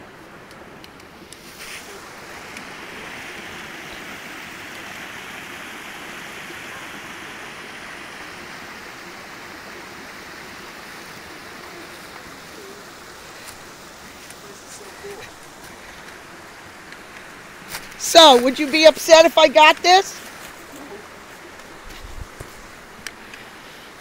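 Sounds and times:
creek water rushing: 0:00.0 - 0:24.0.

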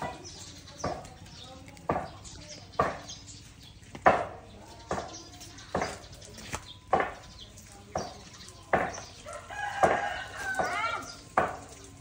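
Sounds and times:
sharp knocks: 0:03.9 - 0:05.1.

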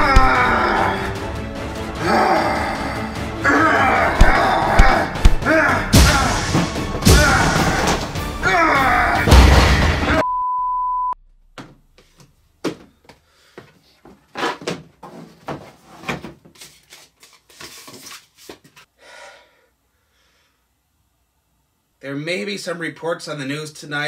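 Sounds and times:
loud music: 0:00.0 - 0:10.2
high beep tone: 0:10.2 - 0:11.2.

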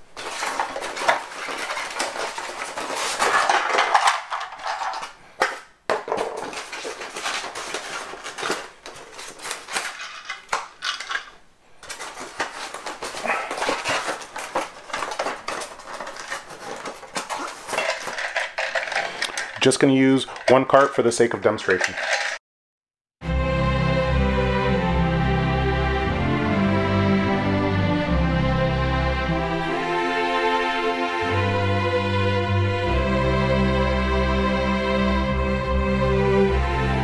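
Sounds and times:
plastic packaging crinkling: 0:00.0 - 0:22.4.

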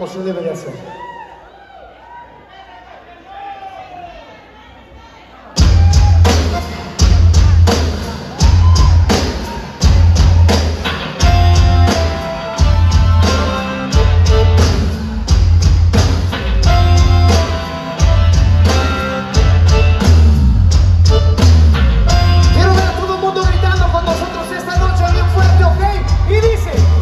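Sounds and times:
live band playing: 0:05.5 - 0:27.0.

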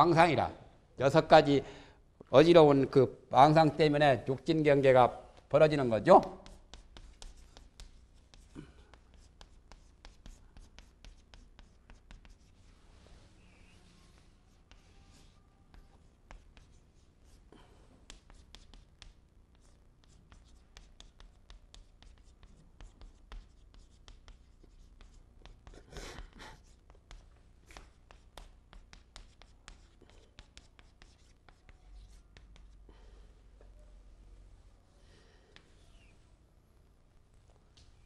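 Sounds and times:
chalk writing on chalkboard: 0:06.2 - 0:12.8, 0:13.6 - 0:32.8
chalk scrape: 0:06.4 - 0:17.4, 0:18.1 - 0:32.8.

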